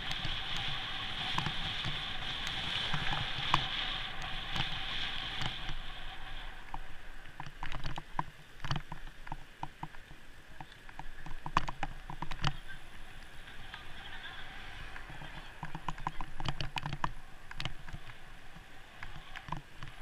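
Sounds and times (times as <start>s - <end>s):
wind and tyre noise: 0.0s - 20.0s
bike clicks and knocks: 6.6s - 12.7s, 15.0s - 20.0s.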